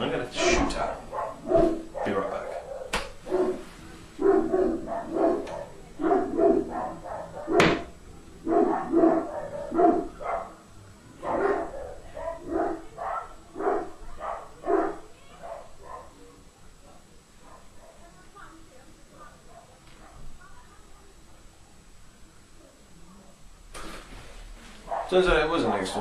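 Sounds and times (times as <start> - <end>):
dog barking: 0.8 - 10.6, 11.2 - 16.4, 17.4 - 18.1, 19.2 - 20.3, 24.8 - 25.2.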